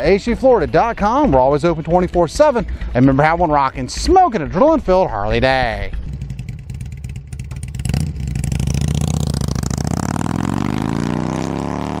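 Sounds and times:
motorcycle engine revving: 5.8 - 12.0.

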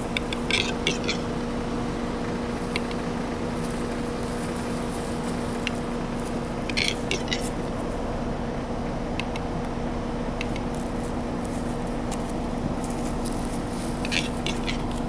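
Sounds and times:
steady low hum: 0.0 - 15.0
bird dry clicks: 10.4 - 13.1.

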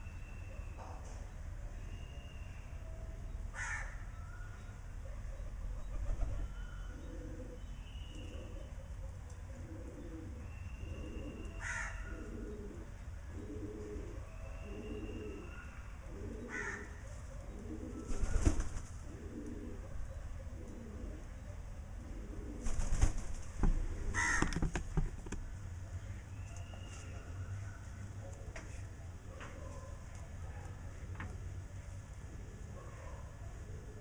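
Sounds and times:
pigeons cooing: 5.4 - 24.6
wing flaps: 18.1 - 19.0, 22.6 - 23.6.

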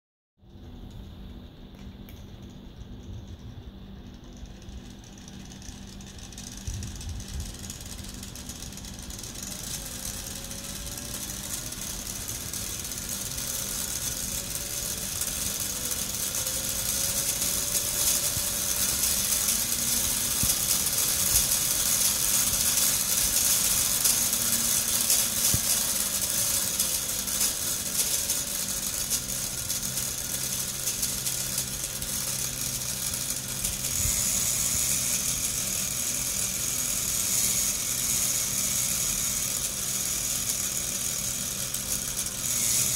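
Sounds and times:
small electric motor whining: 4.2 - 42.9.

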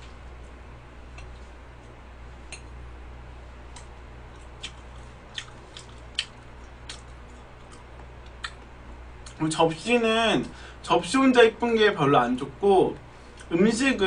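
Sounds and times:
low steady hum: 0.0 - 14.0
wet chewing clicks: 3.7 - 9.4.

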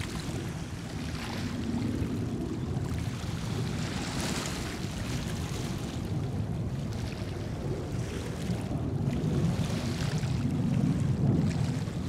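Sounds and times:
distant jet rumble: 7.5 - 12.0.

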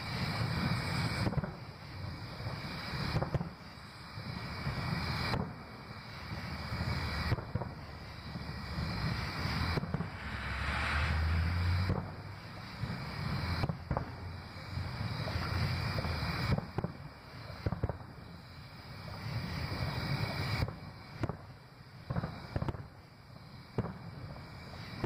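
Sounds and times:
firework shells bursting: 6.3 - 14.6
low rumble of booms: 8.8 - 16.7.

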